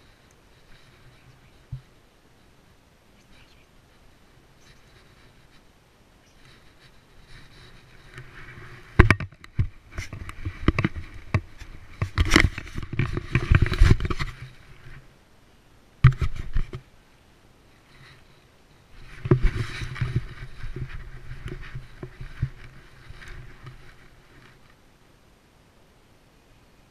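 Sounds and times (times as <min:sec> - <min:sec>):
camera mount knocking and scraping: 0:08.9 - 0:14.5, 0:16.0 - 0:16.8, 0:19.1 - 0:22.7.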